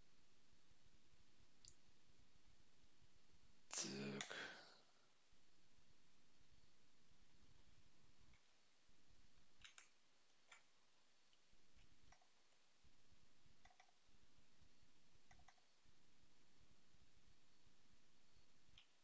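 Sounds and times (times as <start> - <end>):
computer mouse clicks: 9.6 - 10.7, 11.3 - 12.5, 13.6 - 14.0, 15.2 - 15.7, 18.7 - 19.0.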